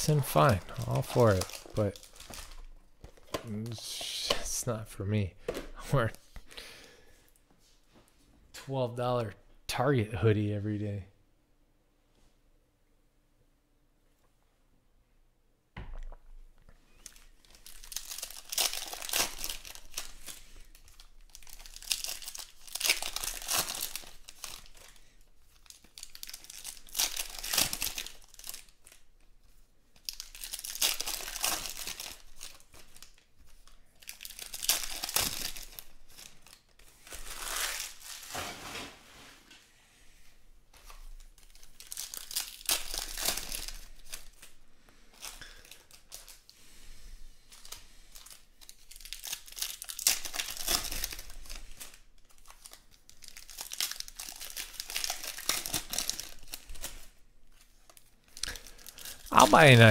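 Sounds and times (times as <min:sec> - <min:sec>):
foil wrappers torn and crinkled: 0:00.0 - 0:02.7, 0:17.0 - 0:29.1, 0:30.0 - 0:38.5, 0:40.9 - 0:46.5, 0:47.4 - 0:59.9.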